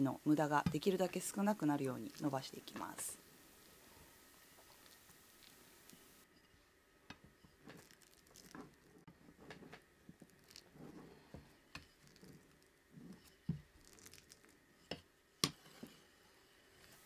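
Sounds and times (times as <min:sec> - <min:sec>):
plastic wrap crinkling: 0:07.6 - 0:09.0, 0:10.1 - 0:10.9, 0:13.7 - 0:14.6.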